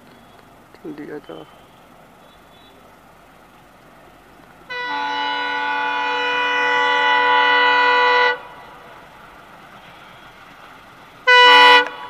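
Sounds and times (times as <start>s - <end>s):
train horn blast: 4.7s - 8.8s, 11.2s - 12.0s.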